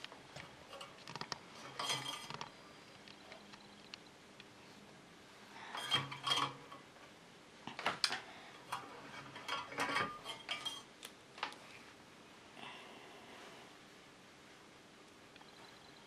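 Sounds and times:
small metal tools clinking: 0:09.4 - 0:10.9.

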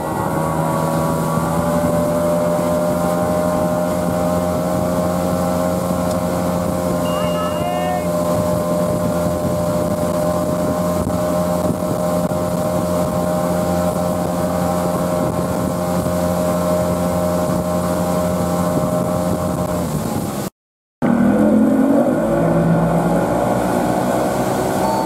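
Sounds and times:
boat motor running: 0:00.0 - 0:20.4, 0:21.0 - 0:25.0
wind buffeting microphone: 0:00.0 - 0:20.5
water rushing: 0:00.0 - 0:25.0.

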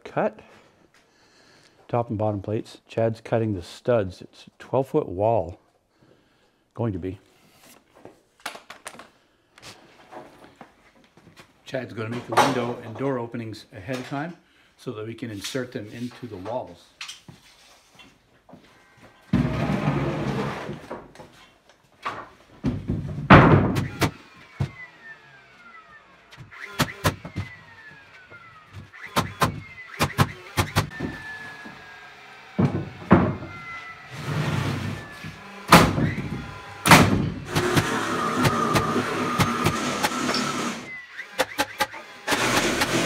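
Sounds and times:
nail gun cracks: 0:23.7 - 0:24.2, 0:26.3 - 0:27.4, 0:28.9 - 0:31.0, 0:41.2 - 0:43.0.

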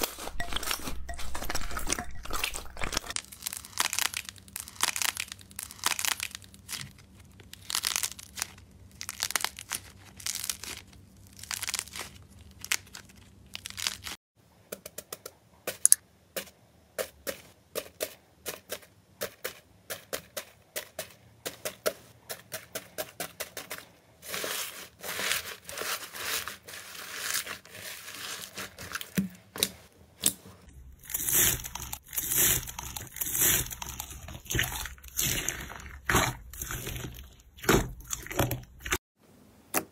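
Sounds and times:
foam beads popping and crunching: 0:00.0 - 0:14.2, 0:30.8 - 0:39.0
slime squishing: 0:00.0 - 0:14.2, 0:19.9 - 0:39.0.

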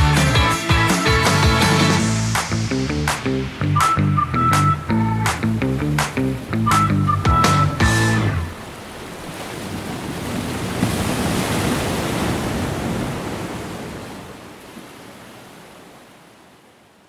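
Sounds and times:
surf washing on sandy beach: 0:08.4 - 0:16.8.

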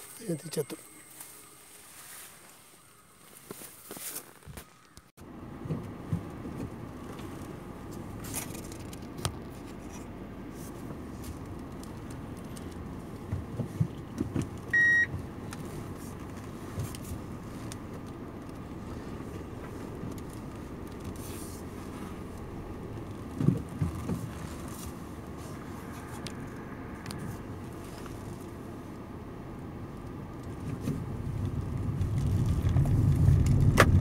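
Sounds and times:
engine and road rumble: 0:00.0 - 0:34.0
short electronic beep: 0:14.8 - 0:15.1.

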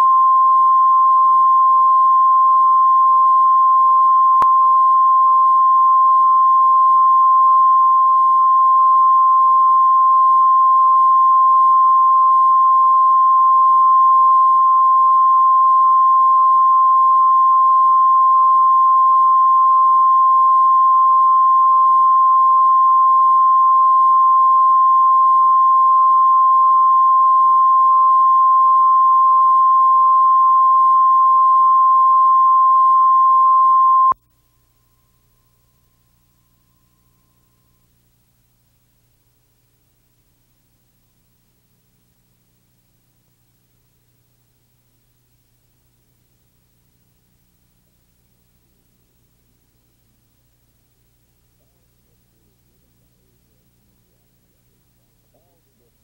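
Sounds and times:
steady test tone: 0:00.0 - 0:37.8.

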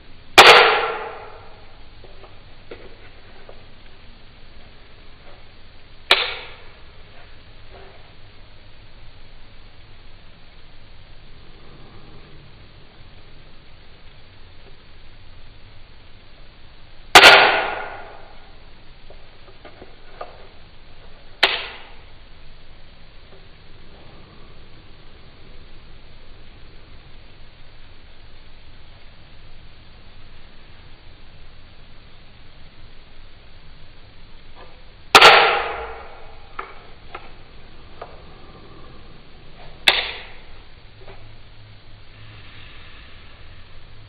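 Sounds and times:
sharp metallic snap: 0:00.4 - 0:01.6, 0:06.1 - 0:06.7, 0:17.1 - 0:18.4, 0:21.4 - 0:22.0, 0:35.1 - 0:36.7, 0:39.8 - 0:40.4.

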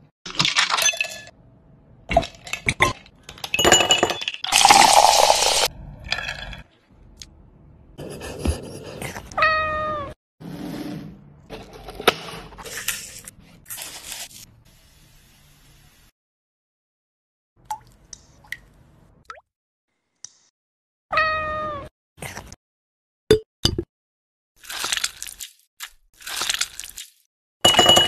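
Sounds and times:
ice clinking into glass: 0:03.5 - 0:06.6
cat meowing: 0:09.3 - 0:10.2, 0:21.1 - 0:21.9.

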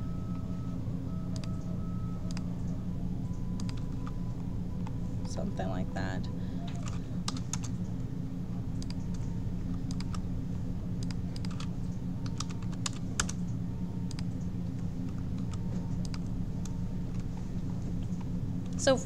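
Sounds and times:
low hum: 0:00.0 - 0:19.0
keyboard and mouse clicking: 0:01.3 - 0:01.6, 0:03.6 - 0:04.2, 0:08.8 - 0:09.2, 0:09.8 - 0:10.2, 0:11.0 - 0:14.4, 0:15.0 - 0:17.2.

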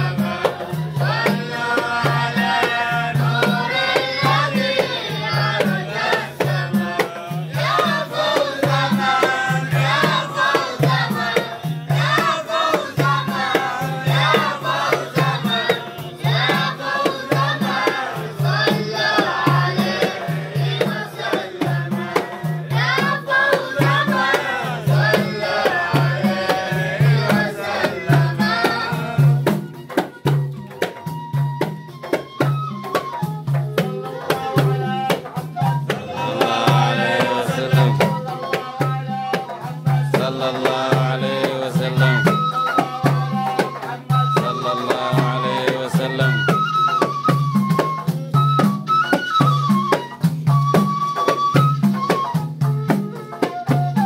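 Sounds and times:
group singing praise songs: 0:00.0 - 0:31.1, 0:32.9 - 0:54.0
hand drum beat: 0:00.0 - 0:54.0.

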